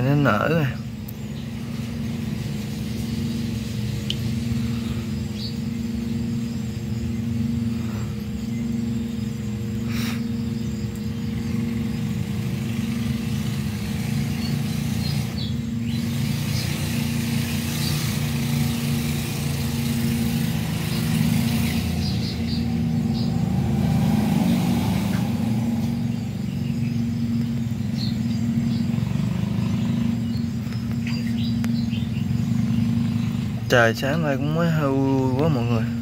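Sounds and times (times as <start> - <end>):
steady machine hum: 0.0 - 36.0
hiss: 9.8 - 10.4.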